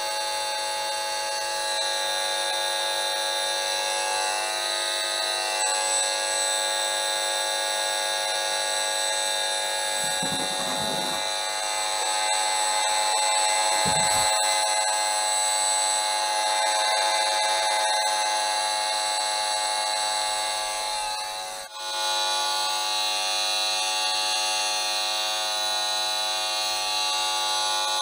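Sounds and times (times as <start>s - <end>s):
electronic buzz of high tones: 9.9s - 18.0s.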